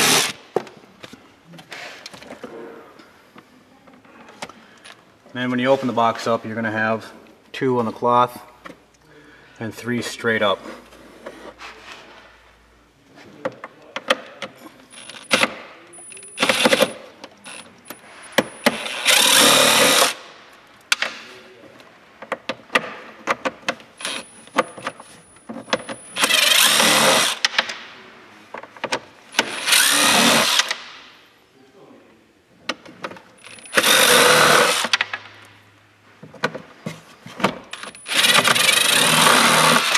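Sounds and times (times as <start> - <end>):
power screwdriver running: 0.0 - 0.4, 18.7 - 20.2, 26.2 - 27.4, 29.4 - 30.8, 33.4 - 35.0, 37.8 - 39.9
tool and screws clicking and rattling: 13.4 - 20.2, 22.2 - 27.8, 32.7 - 35.4, 37.3 - 39.9.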